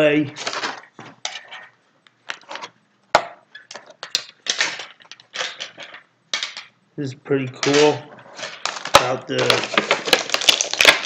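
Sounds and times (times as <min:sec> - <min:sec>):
plastic packaging crinkling: 0:00.3 - 0:01.0, 0:07.6 - 0:11.0.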